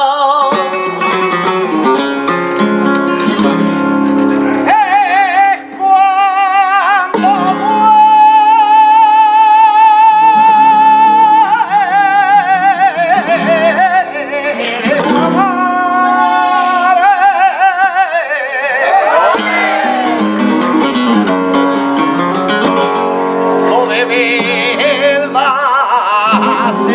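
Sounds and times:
man singing: 0.0s - 2.0s, 4.4s - 26.9s
guitar: 0.0s - 26.9s.

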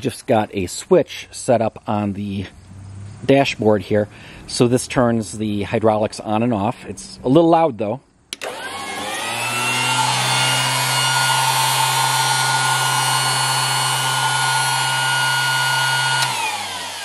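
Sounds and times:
electric motor humming and whining: 8.4s - 17.0s.

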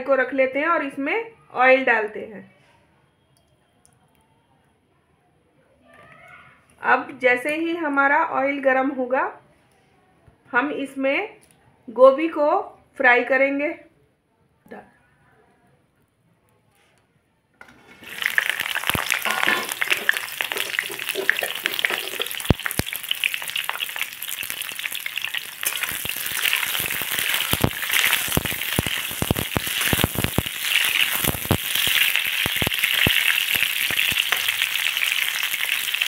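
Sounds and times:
metal spatula scraping pan: 17.6s - 22.4s
vegetables sizzling in hot oil: 17.6s - 36.0s.

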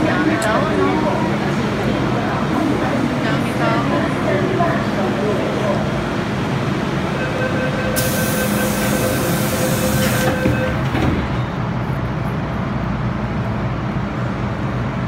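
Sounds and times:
train rumbling: 0.0s - 15.0s
train motor whine: 7.2s - 11.3s
loud hiss: 8.0s - 10.3s.

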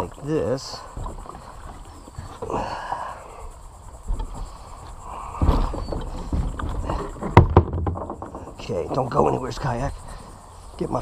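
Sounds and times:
kayak bumping and scraping on dock: 0.0s - 11.0s
heavy thump: 5.3s - 8.7s
sharp knocks: 5.4s - 8.8s.

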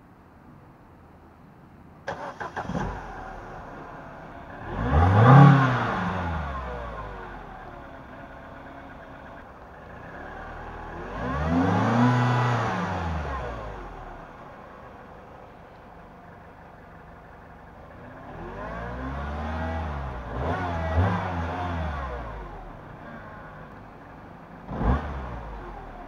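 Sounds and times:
car engine starting and revving: 2.1s - 26.0s.

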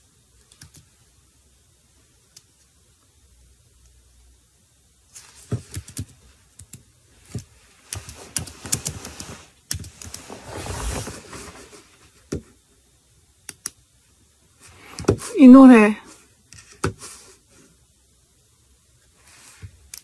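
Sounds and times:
fingers typing on keys: 0.4s - 0.9s, 5.7s - 6.8s
soft rustle: 5.1s - 6.4s, 7.2s - 12.2s.

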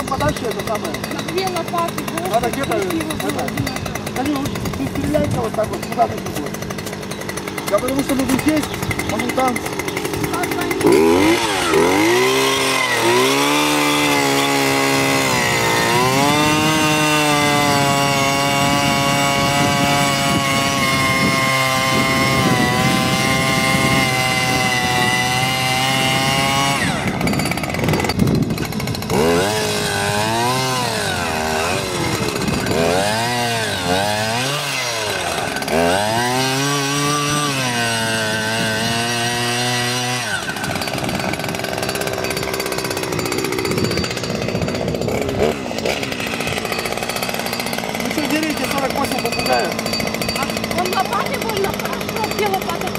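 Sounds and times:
two-stroke earth auger engine: 0.0s - 52.9s.

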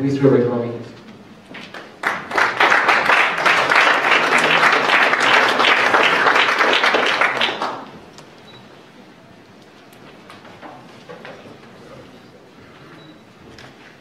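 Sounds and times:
audience applauding: 1.5s - 8.2s.

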